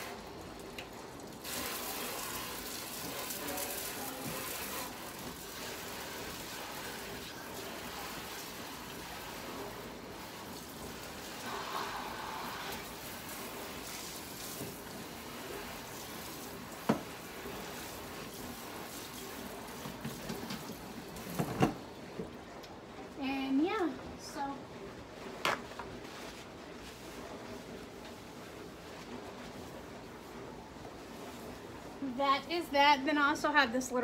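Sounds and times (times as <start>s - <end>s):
water running from sink tap: 0.0s - 21.4s.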